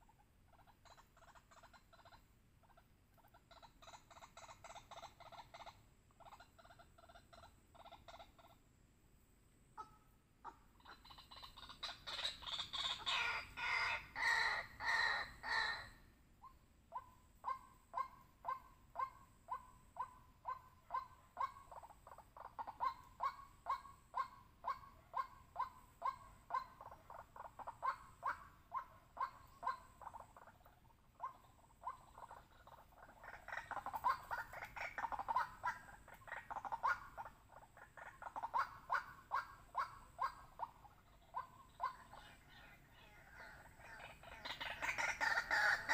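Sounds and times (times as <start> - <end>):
waterhen calling: 9.8 - 45.9.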